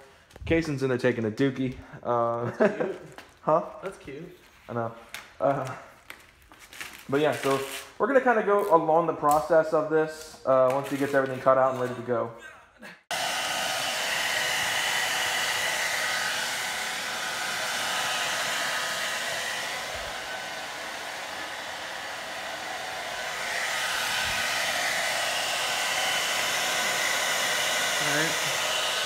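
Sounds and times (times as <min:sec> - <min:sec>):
hair dryer blowing: 0:13.1 - 0:29.0.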